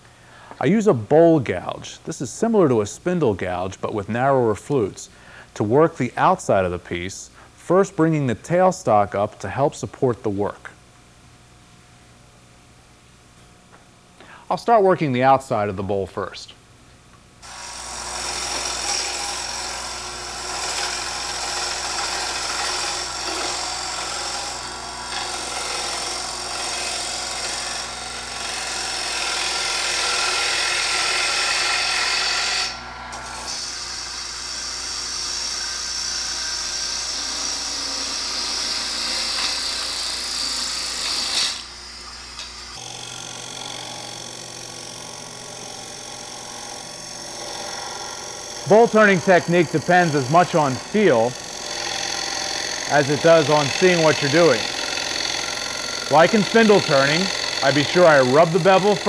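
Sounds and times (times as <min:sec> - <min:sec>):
lathe motor hum: 0:17.4 - 0:59.0
gouge cutting wood hiss: 0:33.5 - 0:59.0.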